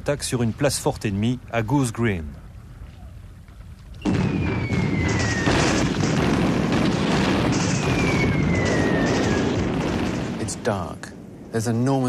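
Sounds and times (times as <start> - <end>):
long falling whistle: 4.0 - 5.8, 7.9 - 9.4
gunfire: 4.0 - 10.9
explosions: 4.0 - 12.0.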